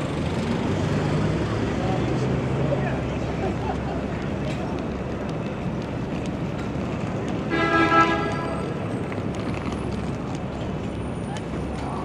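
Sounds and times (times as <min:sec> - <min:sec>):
city street traffic: 0:00.0 - 0:12.0
vehicle horn honk: 0:07.5 - 0:08.6.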